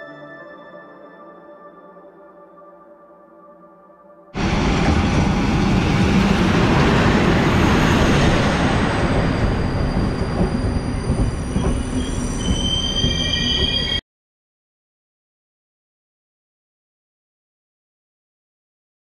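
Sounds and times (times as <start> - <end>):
train engine and wheels rumbling: 4.4 - 14.0
train wheels and brakes squealing: 4.4 - 14.0.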